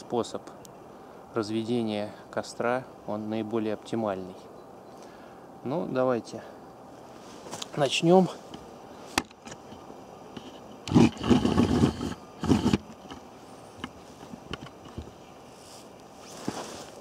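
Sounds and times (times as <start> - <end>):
jacket rustling: 7.1 - 7.8, 15.5 - 17.0
rough rubbing and knocking: 10.4 - 13.2.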